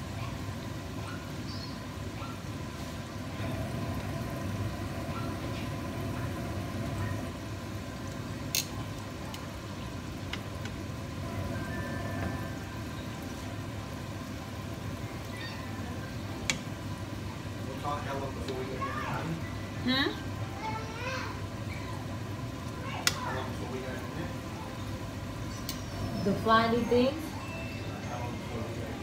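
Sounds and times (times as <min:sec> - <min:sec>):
food deep-frying in oil: 0:00.0 - 0:29.0
metal tongs clicking on pan: 0:08.5 - 0:09.5.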